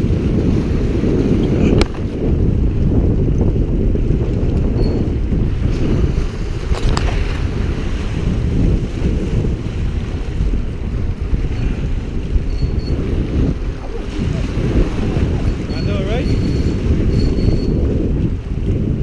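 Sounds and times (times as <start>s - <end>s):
wind buffeting microphone: 0.0s - 19.0s
waves splashing against rocks: 4.1s - 17.6s.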